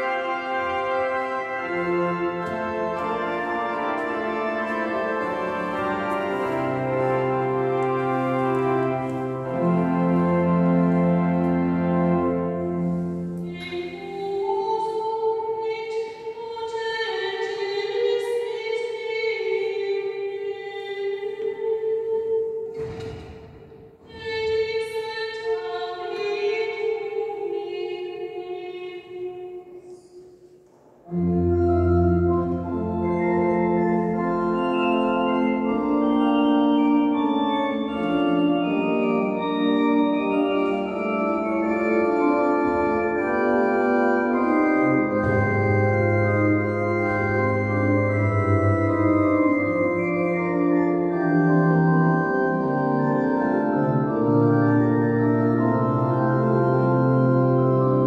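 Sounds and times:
held chord: 0:00.0 - 0:14.5, 0:31.1 - 0:58.0
church organ chords: 0:00.0 - 0:15.6, 0:31.1 - 0:58.0.

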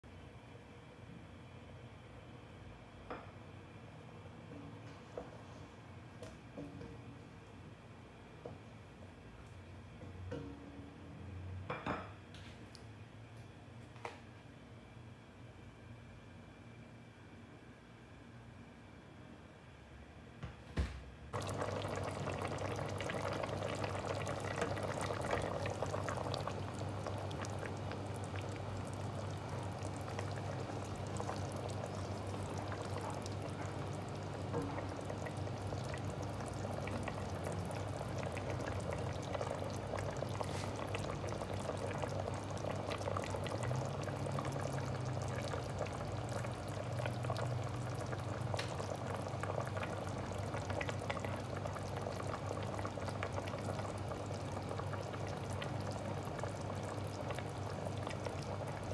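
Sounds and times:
curry bubbling in a pot: 0:21.4 - 0:58.9.

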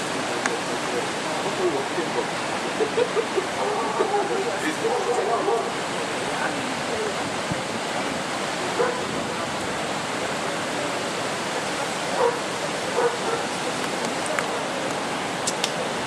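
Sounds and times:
dog barking: 0:04.8 - 0:05.7, 0:08.8 - 0:09.1, 0:12.2 - 0:13.5.

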